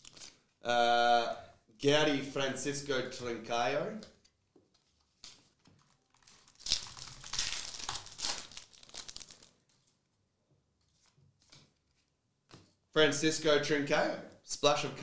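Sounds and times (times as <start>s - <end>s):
foil wrapper crinkling: 5.0s - 9.9s.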